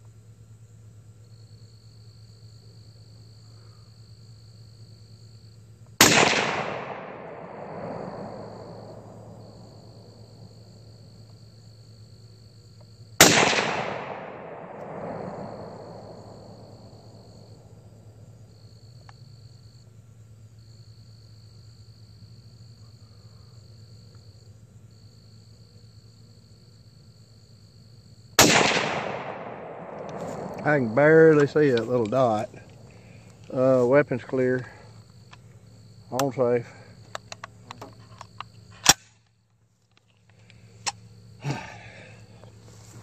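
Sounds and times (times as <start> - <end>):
rifle shots with rolling echo: 6.0 - 10.8, 13.2 - 17.9, 28.4 - 33.2.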